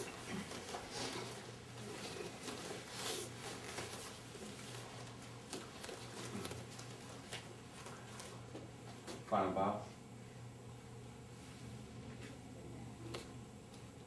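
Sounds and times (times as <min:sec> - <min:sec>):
people rustling and shuffling: 0:00.0 - 0:09.4
low steady hum: 0:00.0 - 0:14.0.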